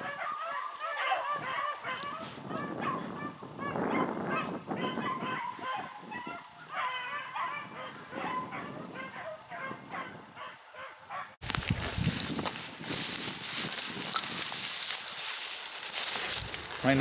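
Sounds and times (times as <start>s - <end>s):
dogs baying: 0.0s - 11.4s.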